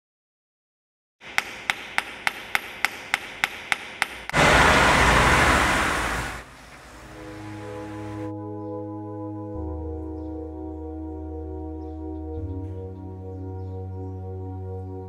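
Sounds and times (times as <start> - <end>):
cars driving past: 4.3 - 8.3.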